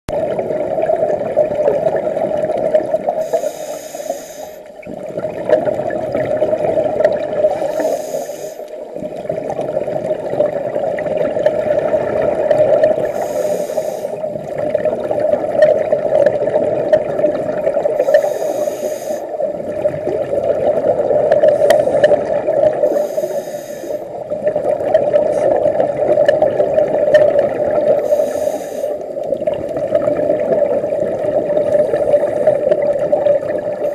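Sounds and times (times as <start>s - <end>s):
bubbling exhales: 0.1s - 33.9s
regulator hissing inhale: 3.2s - 4.8s, 7.5s - 8.9s, 13.0s - 14.4s, 18.0s - 19.5s, 21.5s - 22.2s, 22.8s - 24.2s, 28.0s - 29.2s.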